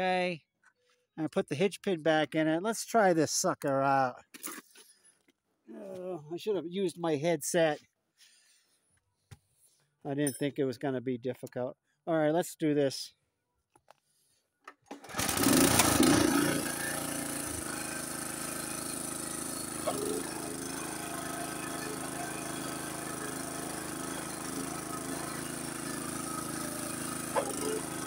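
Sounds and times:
snowblower engine starting and running: 0:14.8 - 0:28.0.

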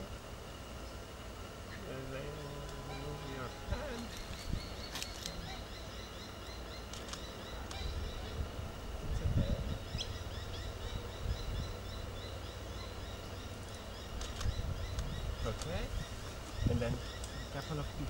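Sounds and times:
faint clicks: 0:06.9 - 0:07.8, 0:14.1 - 0:15.8.

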